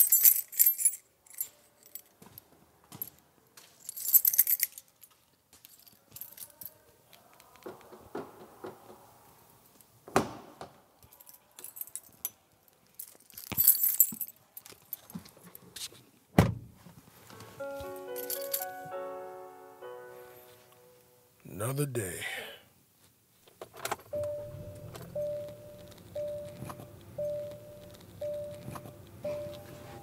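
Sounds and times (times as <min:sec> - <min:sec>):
metallic jingling: 0:00.0 - 0:02.0
keyboard melody: 0:17.3 - 0:21.4, 0:24.1 - 0:30.0.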